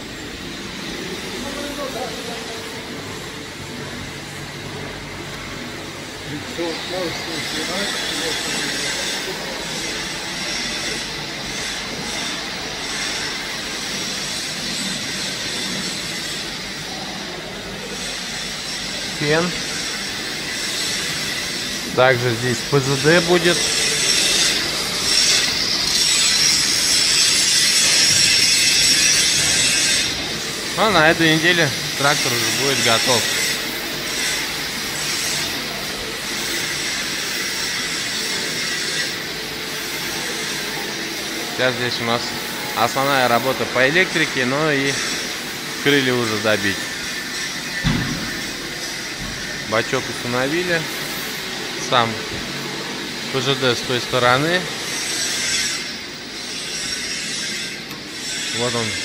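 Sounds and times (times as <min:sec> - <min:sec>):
workshop background hiss: 0:00.0 - 0:59.0
mechanical rushing hum: 0:45.1 - 0:54.9.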